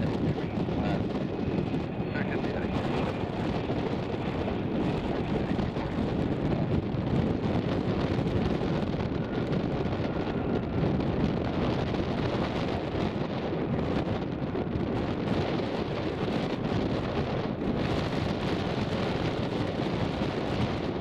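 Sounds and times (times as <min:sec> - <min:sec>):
jet engines roaring: 0:00.0 - 0:21.0
wind on microphone: 0:00.0 - 0:21.0.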